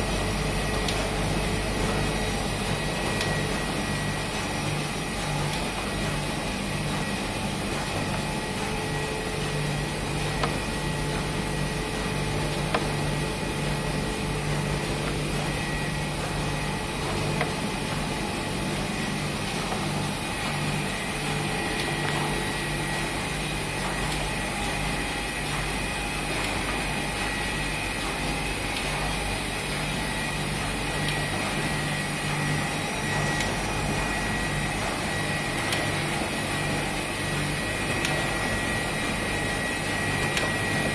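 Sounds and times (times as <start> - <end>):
machine hum: 0.0 - 40.9.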